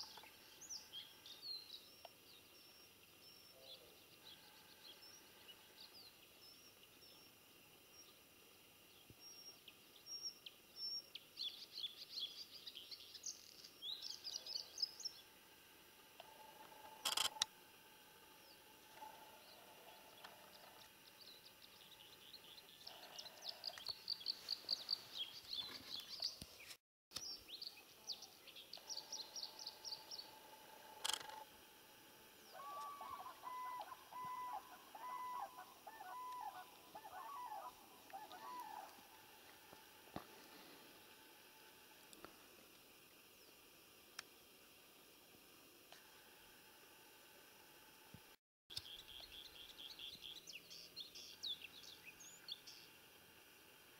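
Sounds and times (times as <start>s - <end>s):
sharp clicks: 17.0s - 17.5s, 31.0s - 31.4s
songbirds trilling: 18.2s - 31.4s, 32.2s - 41.1s, 48.7s - 53.1s
bird call of repeated notes: 32.5s - 39.0s.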